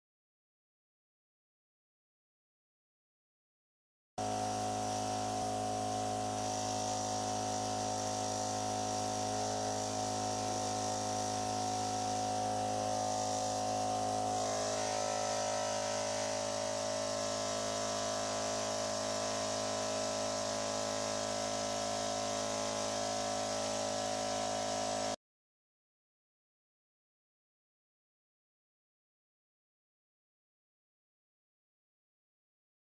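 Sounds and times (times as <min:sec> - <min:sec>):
air compressor buzzing hum: 0:04.2 - 0:25.2.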